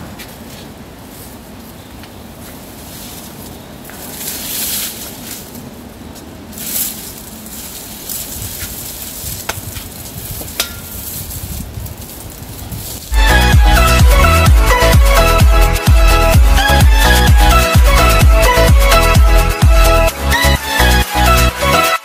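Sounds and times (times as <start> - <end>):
steady hiss: 0.0 - 13.5
dry palm fronds rustling: 0.0 - 14.2.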